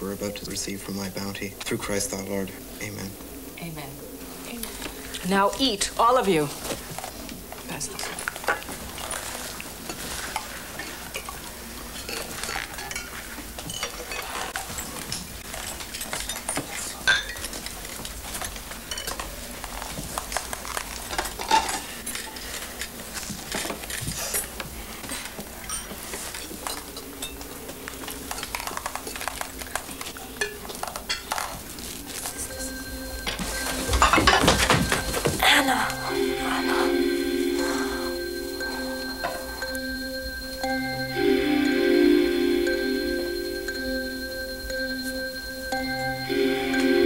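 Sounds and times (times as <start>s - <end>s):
cutlery clinking on china: 12.0s - 19.3s.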